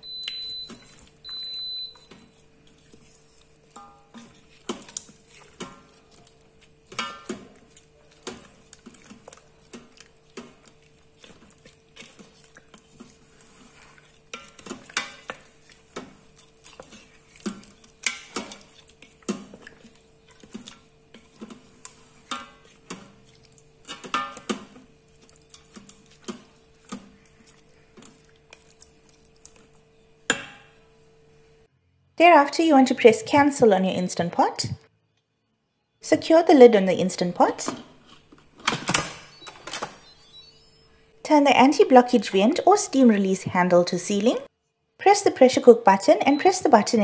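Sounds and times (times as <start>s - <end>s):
wooden spoon knocking metal pot: 6.9s - 7.5s.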